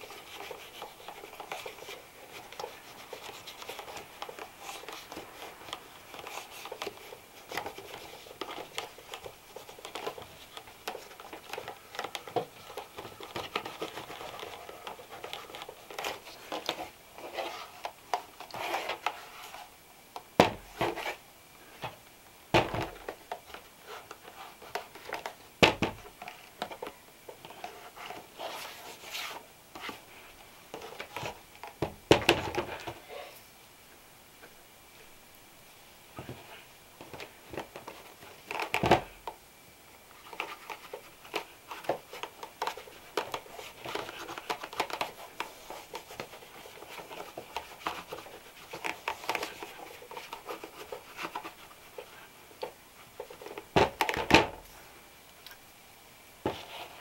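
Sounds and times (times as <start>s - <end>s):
brush rubbing leather shoe: 0.0s - 10.6s.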